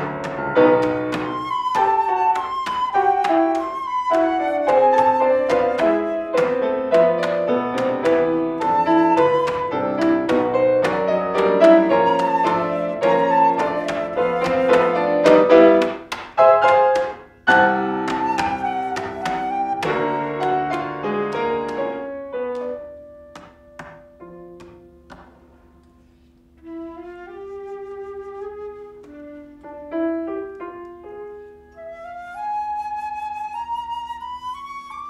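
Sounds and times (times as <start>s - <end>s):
flute: 0.0s - 15.9s, 17.5s - 21.1s, 26.6s - 30.0s, 31.6s - 35.0s
piano: 0.0s - 35.0s.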